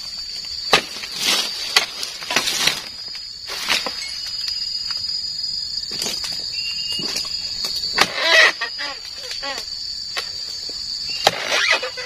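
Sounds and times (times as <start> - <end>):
high insect drone: 0.0 - 12.0
chisel chopping palm fronds: 0.7 - 2.9, 7.9 - 8.5, 11.2 - 12.0
frond falling through leaves: 0.7 - 4.4.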